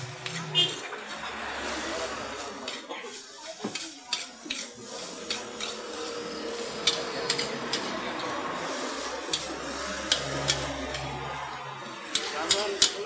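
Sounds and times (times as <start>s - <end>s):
frying hiss: 0.0s - 13.0s
metal spatula clanking on wok: 3.7s - 5.8s, 12.0s - 13.0s.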